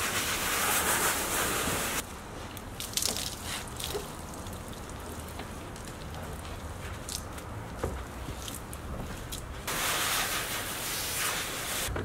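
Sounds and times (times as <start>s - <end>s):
hose spraying water: 0.0s - 2.0s, 9.6s - 11.9s
sponge rubbing on car: 0.0s - 2.0s, 9.7s - 11.9s.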